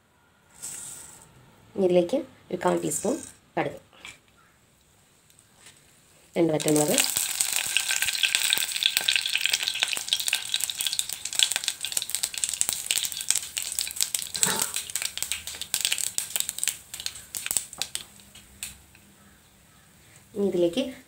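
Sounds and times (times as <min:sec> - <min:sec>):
mustard seeds popping in hot oil: 0:06.5 - 0:19.1.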